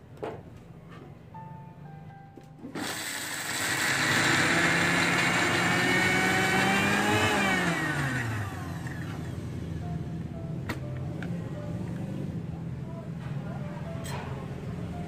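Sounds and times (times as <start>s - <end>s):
mixer grinder motor whine: 2.7s - 9.8s
grinder jar chopping: 2.8s - 9.0s.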